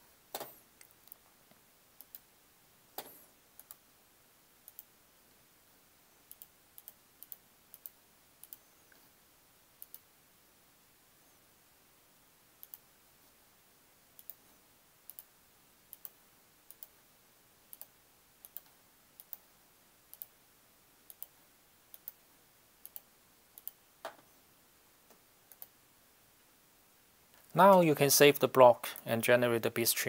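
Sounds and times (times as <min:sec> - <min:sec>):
computer mouse clicking: 0:00.3 - 0:01.2, 0:02.0 - 0:02.3, 0:03.0 - 0:03.8, 0:04.6 - 0:04.9, 0:06.3 - 0:08.7, 0:09.8 - 0:10.1, 0:12.6 - 0:12.9, 0:14.2 - 0:14.4, 0:15.1 - 0:15.3, 0:15.9 - 0:17.0, 0:17.7 - 0:19.5, 0:20.1 - 0:20.4, 0:21.1 - 0:22.2, 0:22.8 - 0:24.2, 0:25.5 - 0:25.8.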